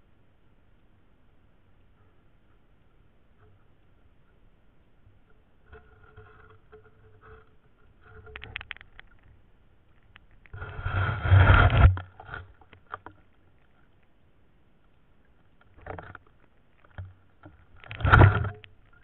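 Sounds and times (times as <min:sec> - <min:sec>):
muffled rush of churned water: 0:02.0 - 0:19.0
underwater clicks and knocks: 0:05.2 - 0:14.1, 0:15.4 - 0:19.0.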